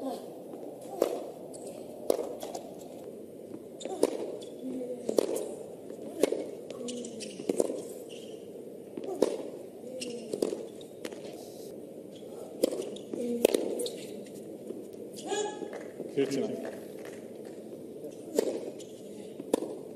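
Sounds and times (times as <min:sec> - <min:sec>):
racket striking tennis ball: 0:00.8 - 0:01.4, 0:02.1 - 0:02.8, 0:03.8 - 0:07.9, 0:09.0 - 0:11.3, 0:12.6 - 0:13.9, 0:18.3 - 0:18.8, 0:19.4 - 0:19.8
tennis ball bouncing: 0:02.0 - 0:11.3, 0:12.5 - 0:14.1, 0:18.2 - 0:19.9.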